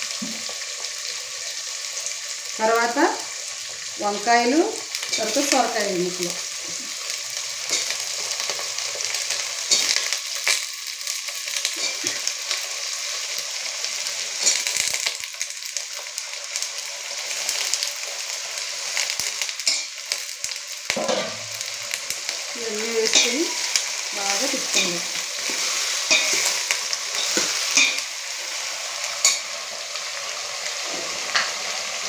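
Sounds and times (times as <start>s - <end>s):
vegetables sizzling in oil: 0.0s - 32.0s
steel ladle scraping pot: 24.7s - 28.0s.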